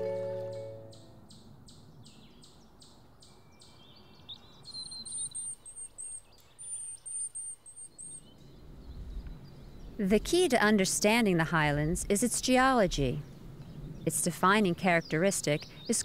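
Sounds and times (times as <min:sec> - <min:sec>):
soft title music: 0:00.0 - 0:01.3
very high thin bird chirps: 0:00.6 - 0:10.0
bird ticking calls: 0:00.9 - 0:08.4.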